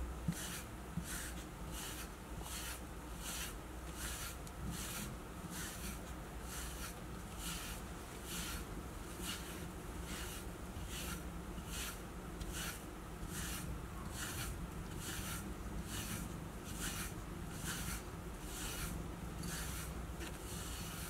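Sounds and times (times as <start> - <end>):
brush strokes through cat fur: 0.3 - 21.0.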